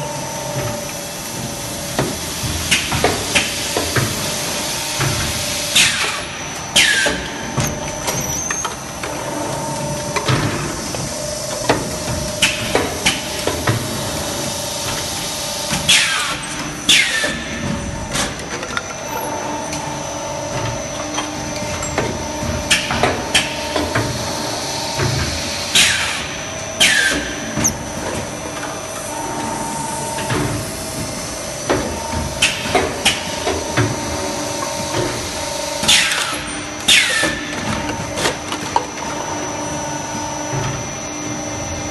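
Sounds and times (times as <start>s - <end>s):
machine hum: 0.0s - 37.0s.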